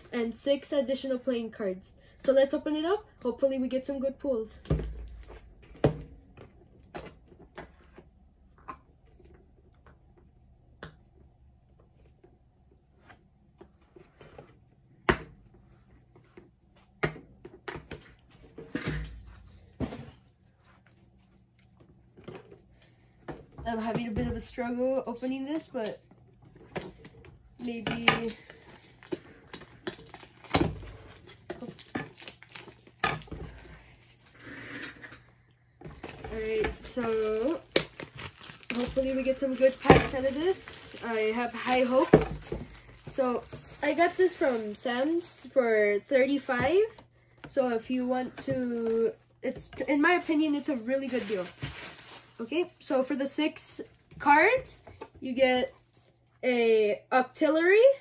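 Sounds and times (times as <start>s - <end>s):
plastic shrink wrap crinkling: 24.4s - 34.0s, 35.9s - 45.6s, 48.0s - 54.1s.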